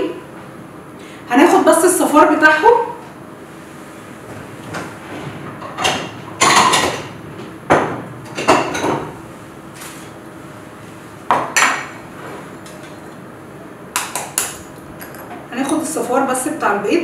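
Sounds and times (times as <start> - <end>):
dishes and bowls clattering: 5.6 - 7.1, 14.0 - 15.9.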